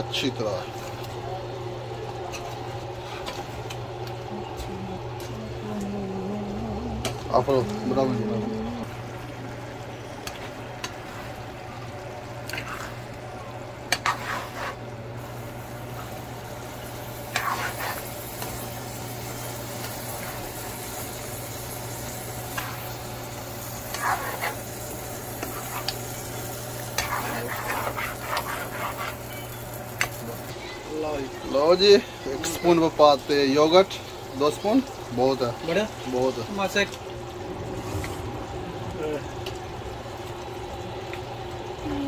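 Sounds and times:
steady low hum: 0.0 - 30.9, 35.8 - 42.0
curry sizzling in a frying pan: 7.0 - 42.0
spoon scraping a pan: 13.9 - 14.8, 17.3 - 18.1, 23.9 - 24.6, 25.4 - 26.2, 26.8 - 30.2.

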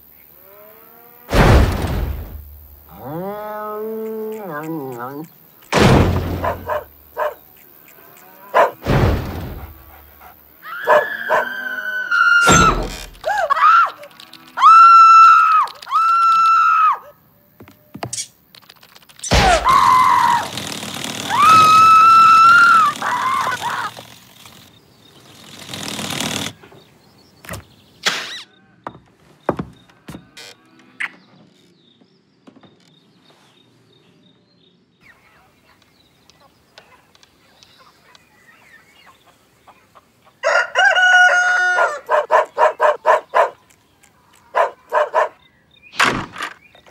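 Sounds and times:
cartoon thuds and knocks: 1.3 - 2.5, 5.7 - 6.7, 8.8 - 9.7.

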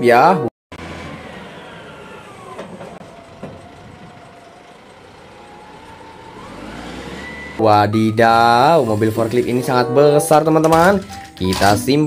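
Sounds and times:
forklift engine running: 0.7 - 10.0.

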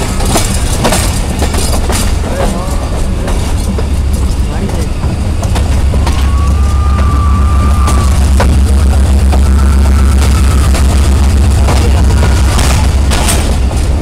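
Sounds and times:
metal clanks and knocks: 0.0 - 7.2, 10.2 - 14.0
locomotive engine rumbling: 0.0 - 14.0.

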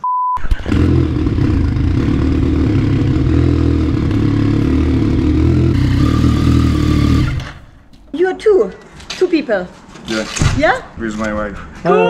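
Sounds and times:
motorcycle engine idling: 0.6 - 7.8.

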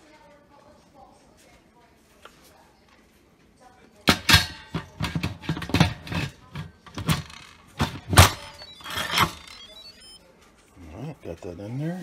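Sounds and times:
pot lid clunking and knocking: 4.1 - 6.3.

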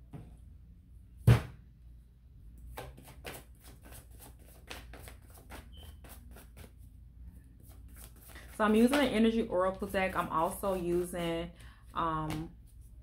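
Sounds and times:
cards being shuffled: 2.7 - 6.8, 7.6 - 9.1.

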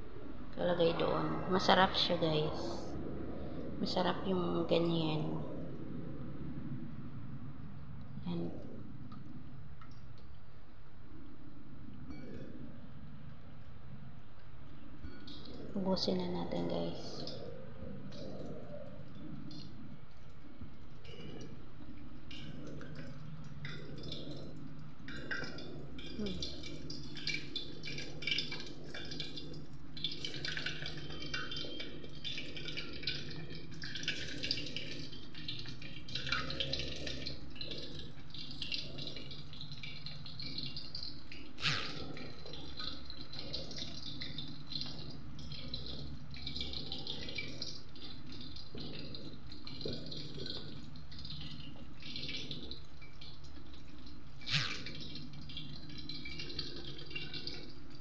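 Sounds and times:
low hum: 0.0 - 58.0
chicken frying in oil: 15.0 - 58.0.

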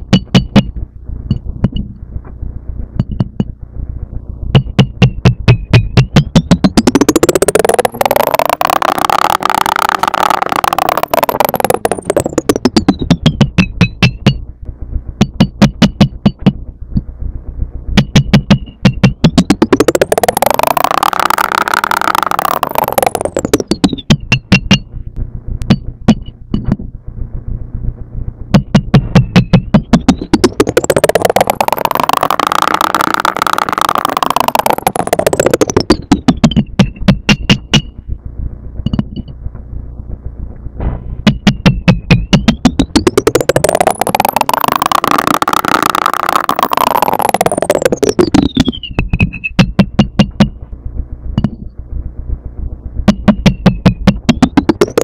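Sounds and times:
sharp percussive electronic beats: 0.0 - 2.0, 4.5 - 17.0, 17.9 - 25.0, 25.6 - 26.8, 28.5 - 38.2, 40.2 - 50.7, 52.9 - 55.0
gliding synthesizer tone: 6.1 - 14.6, 18.1 - 28.2, 29.3 - 49.6, 54.2 - 55.0.

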